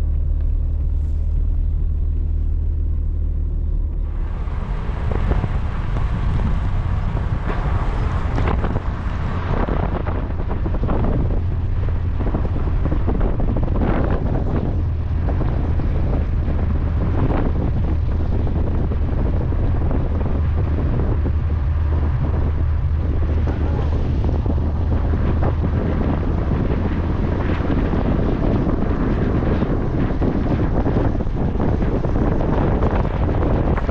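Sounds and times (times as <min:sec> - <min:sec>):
wind buffeting microphone: 0:00.0 - 0:33.9.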